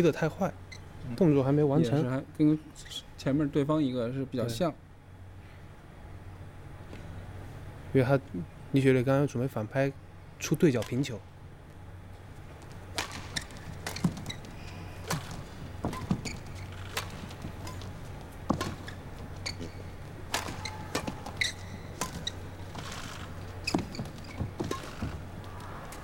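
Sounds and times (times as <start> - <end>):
steady low hum: 0.0 - 26.0
shoes squeaking on court: 12.6 - 26.0
rackets striking shuttlecock: 12.9 - 25.4.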